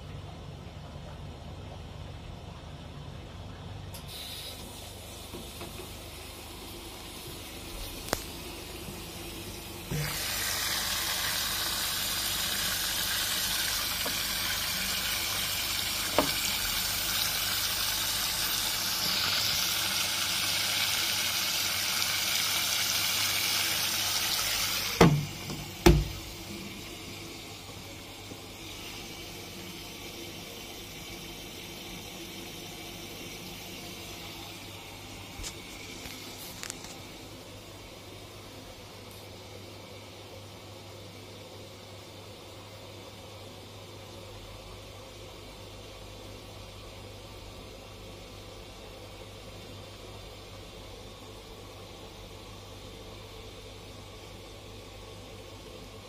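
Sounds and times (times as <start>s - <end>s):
quiet steady hum: 0.0s - 56.0s
water rushing into washing machine: 4.0s - 36.1s
sharp knocks: 25.0s - 26.2s.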